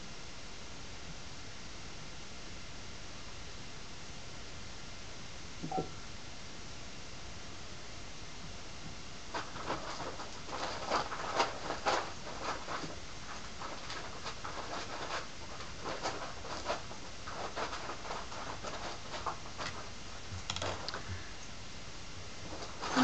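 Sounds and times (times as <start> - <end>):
light scratching and tapping: 9.3 - 21.2.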